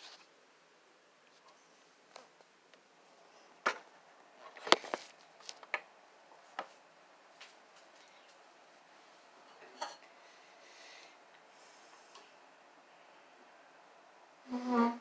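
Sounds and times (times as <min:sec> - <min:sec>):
vinyl record clicks and knocks: 0:03.6 - 0:05.9.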